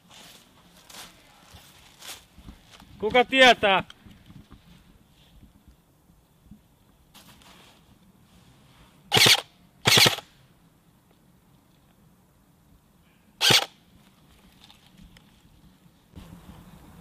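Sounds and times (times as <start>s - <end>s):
airsoft gun full-auto bursts: 9.1s - 10.3s, 13.4s - 13.7s.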